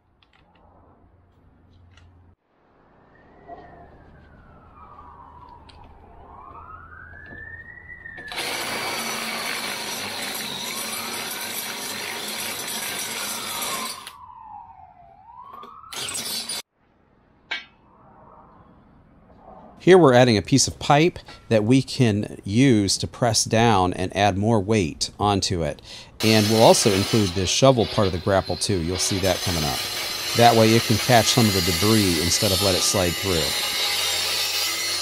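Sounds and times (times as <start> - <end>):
siren wailing: 2.7 - 8.5, 13.2 - 16.6, 17.8 - 19.8
angle grinder on steel: 8.3 - 14.1, 15.9 - 16.6, 26.2 - 35.0.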